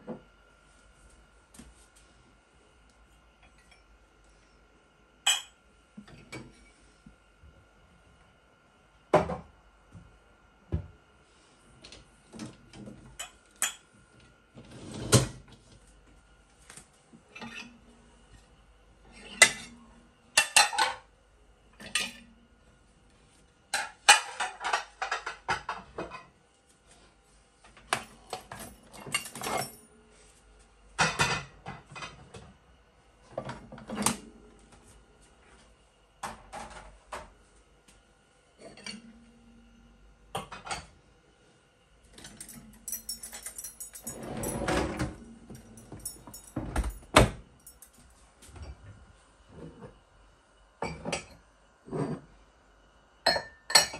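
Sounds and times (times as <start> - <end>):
dishes and cutlery clattering: 42.3 - 47.0.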